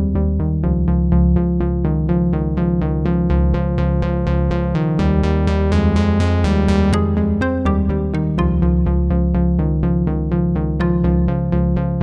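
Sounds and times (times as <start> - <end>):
sustained bass line: 0.0 - 12.0
synthesizer short notes: 6.9 - 9.0.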